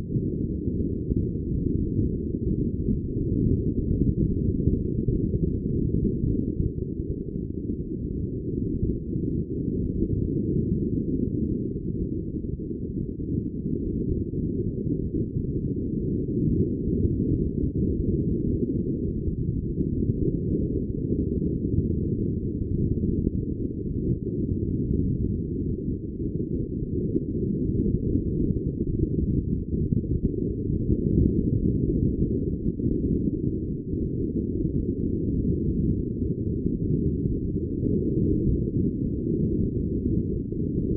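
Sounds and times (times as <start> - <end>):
wind buffeting microphone: 15.9 - 40.9.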